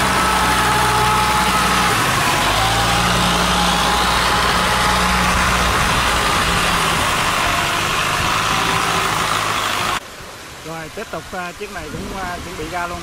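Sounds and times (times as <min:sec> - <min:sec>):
boat engine running hard: 0:00.0 - 0:10.0
churning propeller wash: 0:00.0 - 0:13.0.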